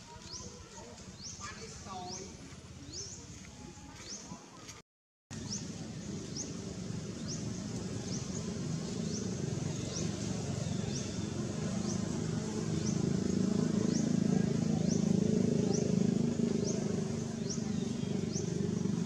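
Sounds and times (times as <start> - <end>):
low rumbling noise: 5.3 - 19.0.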